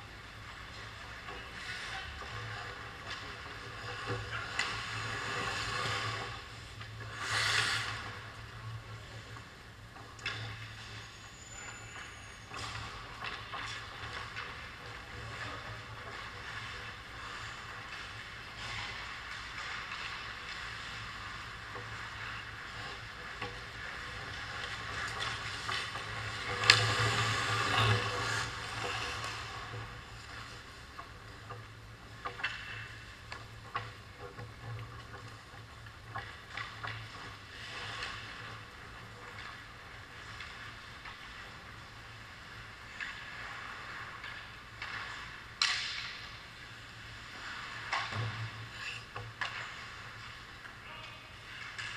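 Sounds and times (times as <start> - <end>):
low steady hum: 0.0 - 51.9
clicks of sticks and puck: 0.5 - 51.9
skate blades scraping on ice: 0.6 - 8.4, 11.7 - 30.8.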